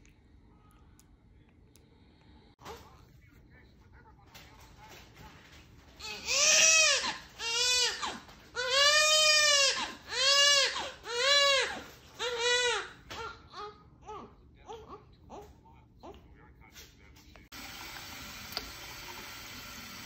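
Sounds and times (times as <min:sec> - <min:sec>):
baby crying: 0:06.0 - 0:16.2.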